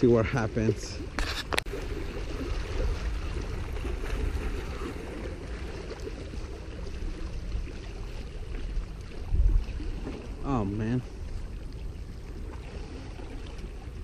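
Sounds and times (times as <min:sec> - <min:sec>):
wind rumble on microphone: 0:00.0 - 0:14.0.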